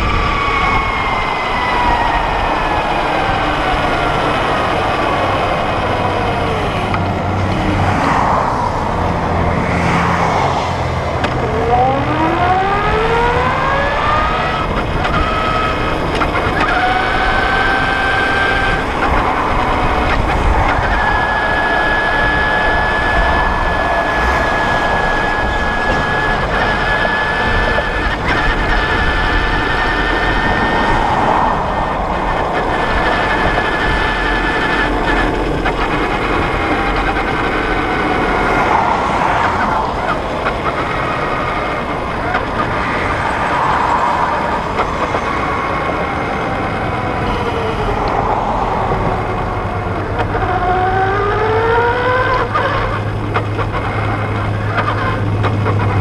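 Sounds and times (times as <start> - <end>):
wind and road rush: 0.0 - 56.0
electric motorcycle motor whining: 11.2 - 56.0.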